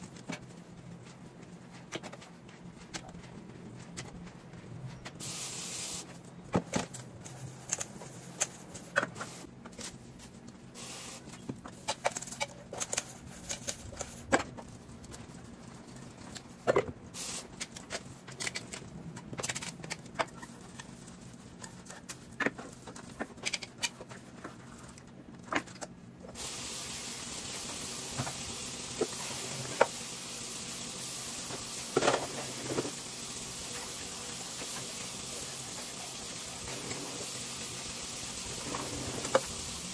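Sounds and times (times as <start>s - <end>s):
tap water running: 26.4s - 39.9s.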